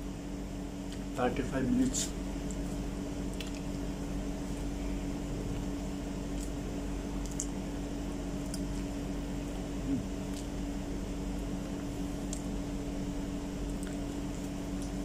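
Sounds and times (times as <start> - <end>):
appliance humming: 0.0 - 15.0
banana being peeled and eaten: 1.8 - 12.6.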